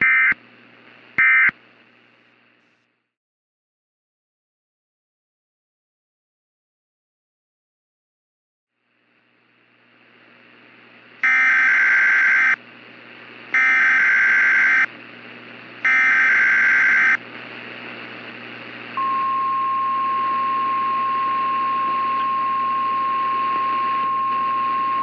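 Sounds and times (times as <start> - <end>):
radio static: 0.0 - 2.3, 10.2 - 19.0
steady warning alarm tone: 1.2 - 1.5, 11.2 - 12.6, 13.6 - 14.9, 15.8 - 17.2
short bursts of data tones: 11.2 - 12.6, 13.6 - 14.9, 15.8 - 17.2.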